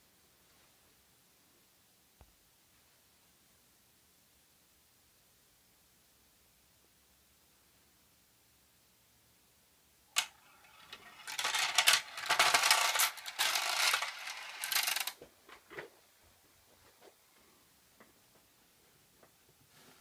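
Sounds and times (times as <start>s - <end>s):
metal balls clattering and rolling: 10.2s - 15.2s.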